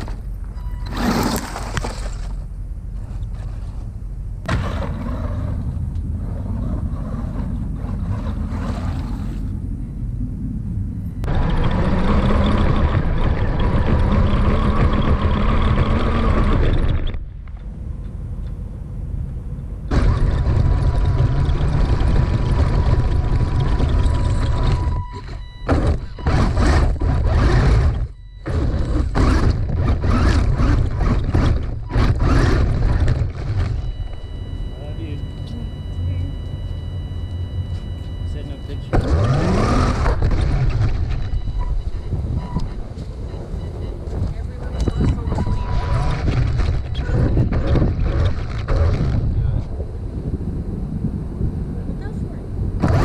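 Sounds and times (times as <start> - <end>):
radio-controlled buggy driving: 3.0 - 9.7, 11.2 - 17.7, 19.8 - 50.9, 51.6 - 53.0
wind on microphone: 39.0 - 53.0.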